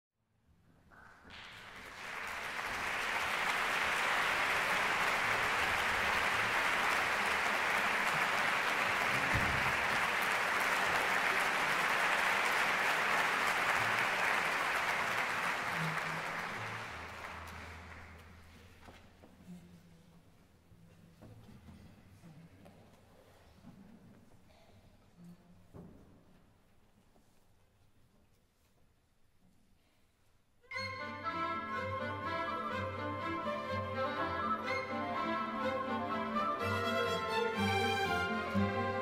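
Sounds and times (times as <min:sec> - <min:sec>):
audience applauding: 0:00.9 - 0:18.4.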